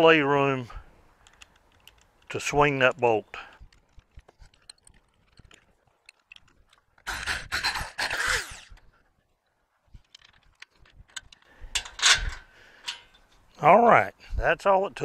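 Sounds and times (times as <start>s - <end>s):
handling clicks: 1.1s - 7.1s
drill grinding into steel: 7.1s - 8.7s.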